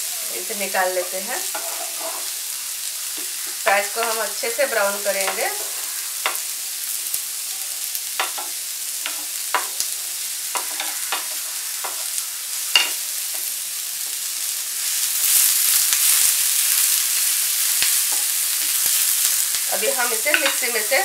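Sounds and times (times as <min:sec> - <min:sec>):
onions sizzling in oil: 0:00.0 - 0:21.0
spatula knocking and scraping pan: 0:01.5 - 0:02.3, 0:05.2 - 0:06.5, 0:08.2 - 0:09.8, 0:10.5 - 0:13.0, 0:20.0 - 0:20.8.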